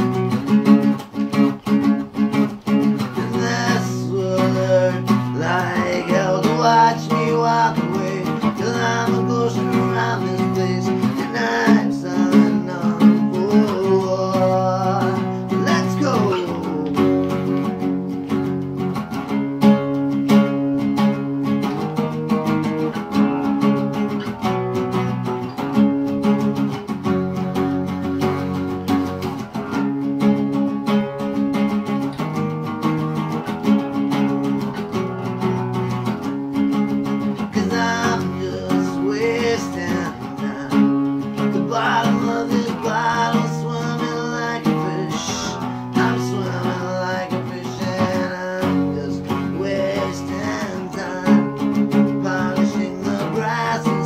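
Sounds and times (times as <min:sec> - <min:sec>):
acoustic guitar strumming chords: 0:00.0 - 0:54.0
man singing: 0:02.8 - 0:17.9, 0:37.1 - 0:54.0.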